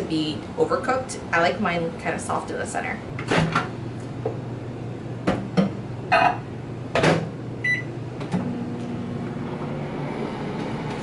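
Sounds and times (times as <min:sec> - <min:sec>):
microwave oven humming: 0:00.0 - 0:11.0
keypad beep: 0:07.6 - 0:07.9.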